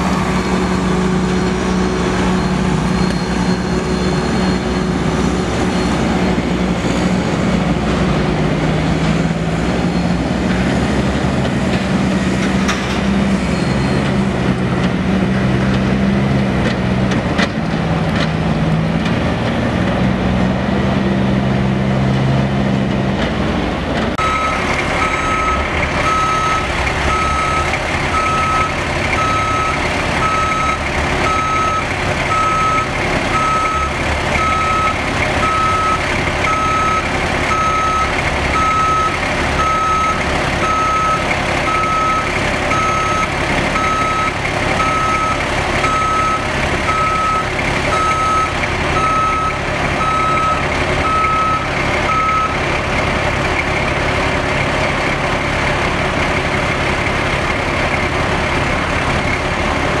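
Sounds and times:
truck backup alarm beeping: 0.0 - 7.8, 24.2 - 52.8
diesel engine running: 0.0 - 60.0.

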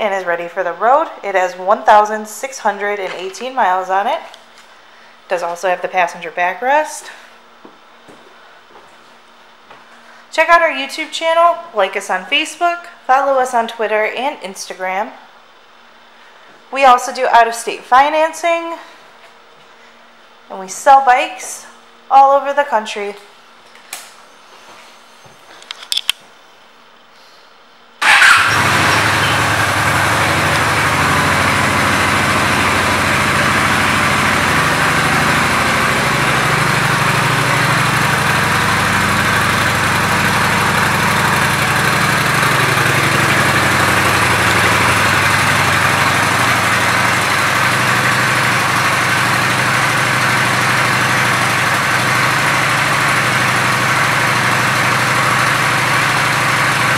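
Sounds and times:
motorcycle engine starting and idling: 28.0 - 56.9.

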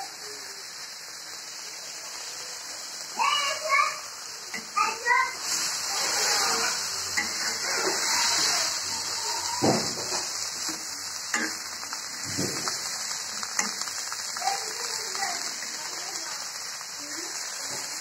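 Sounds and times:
vegetables sizzling in oil: 0.0 - 18.0
metal spatula scraping a pan: 5.4 - 11.7.

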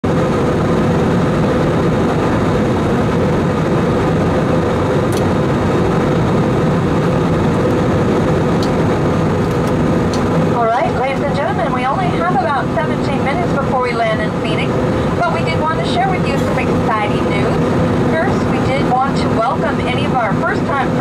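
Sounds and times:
engine drone: 0.0 - 21.0.

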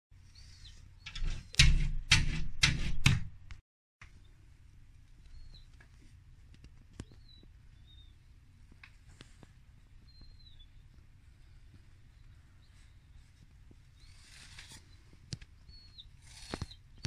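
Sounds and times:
small bird chirping: 0.2 - 1.6, 5.2 - 5.8, 6.9 - 8.6, 9.8 - 17.0
loud knocks: 1.2 - 3.4.

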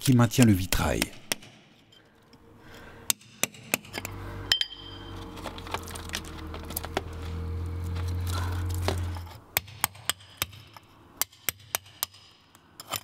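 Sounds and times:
low steady hum: 1.9 - 11.2
clinks against glass and metal: 3.9 - 5.1.

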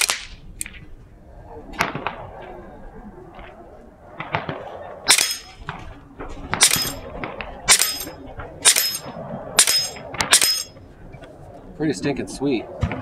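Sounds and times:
air rifle shots with metallic ring: 5.1 - 5.6, 6.6 - 7.0, 7.7 - 10.8.

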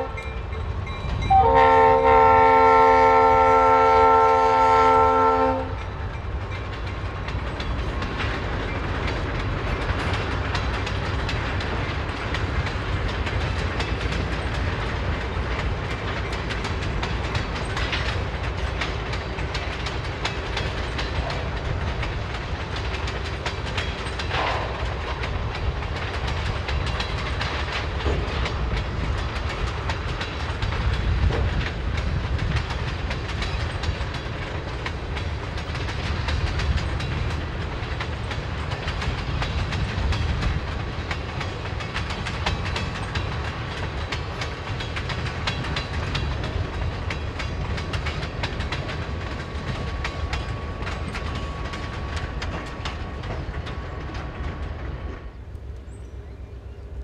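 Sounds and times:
wheels ticking over rail joints: 0.0 - 56.8
freight train rumbling past: 0.0 - 57.0.

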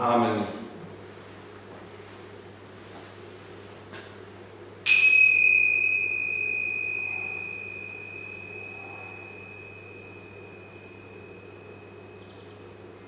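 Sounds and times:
small bell ringing: 4.9 - 13.0.

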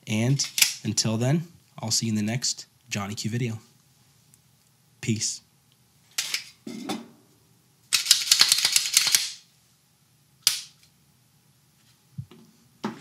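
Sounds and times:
pistol clicking: 7.9 - 9.4.

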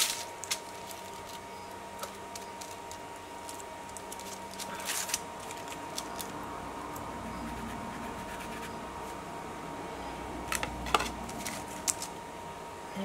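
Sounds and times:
paper scratching and rustling: 2.0 - 6.4, 11.1 - 12.1.

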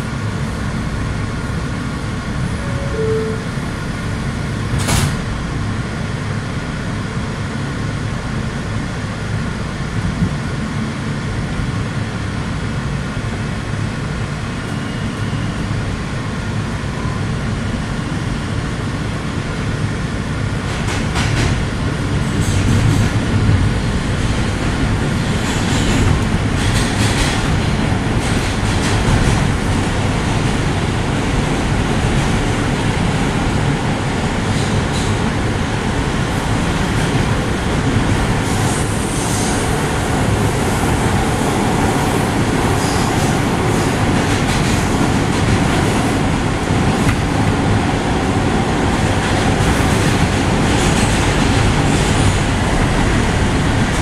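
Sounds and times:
subway train wheels rumbling: 0.0 - 54.0
train clicks and rattles: 4.7 - 5.3, 20.6 - 54.0.

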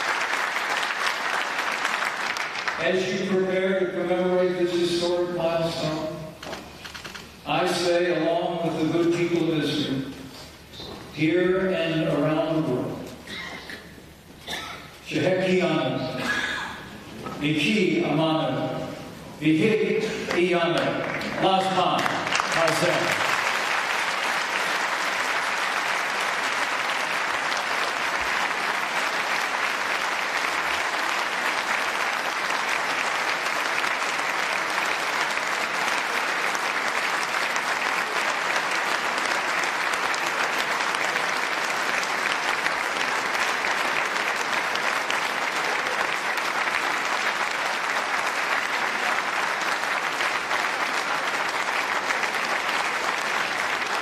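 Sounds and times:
large audience applauding: 0.0 - 3.5, 20.3 - 54.0.

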